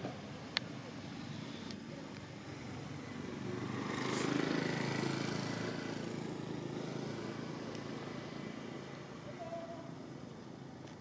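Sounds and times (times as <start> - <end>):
passing vehicle engine: 0.8 - 10.8.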